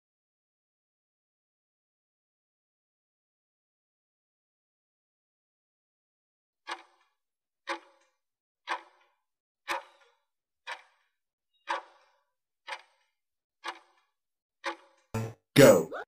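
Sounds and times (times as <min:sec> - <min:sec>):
clock ticks: 0:06.7 - 0:15.3.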